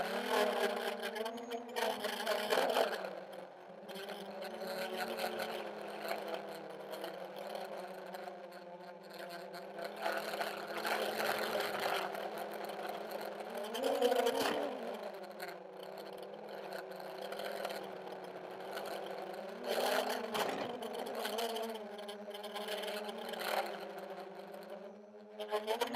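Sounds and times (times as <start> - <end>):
drone motors whirring: 9.2 - 25.9.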